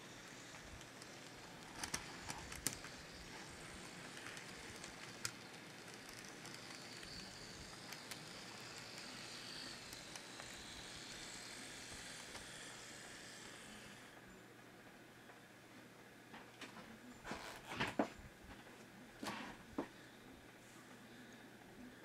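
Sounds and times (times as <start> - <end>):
model train rolling on track: 0.0 - 14.4
faint high whine: 0.0 - 22.0.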